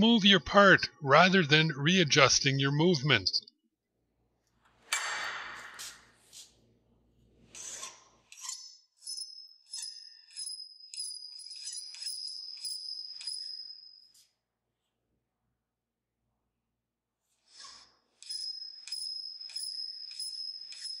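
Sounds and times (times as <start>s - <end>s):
high ringing tone: 9.0s - 14.3s, 18.2s - 21.0s.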